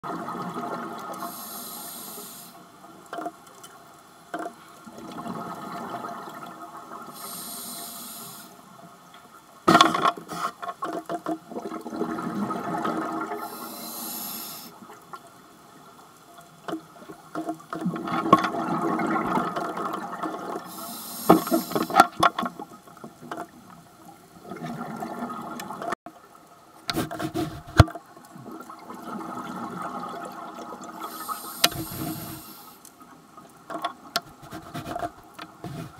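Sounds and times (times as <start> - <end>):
regulator hissing inhale: 1.2 - 2.6, 7.2 - 8.6, 13.4 - 14.8, 20.7 - 22.0, 31.0 - 32.9
exhaled bubbles rushing: 17.9 - 20.7.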